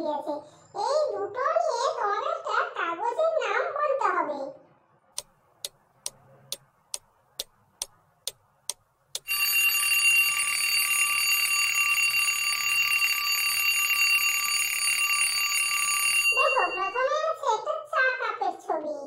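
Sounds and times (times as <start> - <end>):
clock ticking: 5.2 - 9.5
alarm clock bell ringing: 9.2 - 17.1.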